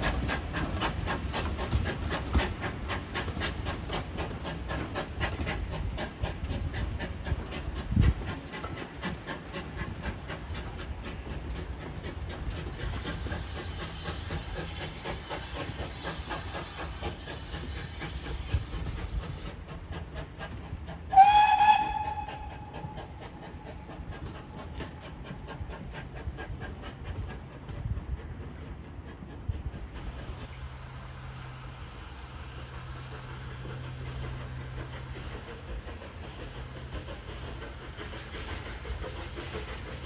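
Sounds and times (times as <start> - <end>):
steam hissing: 0.0 - 40.0
steam locomotive exhaust beating: 0.0 - 40.0
steam whistle blast: 21.1 - 23.0.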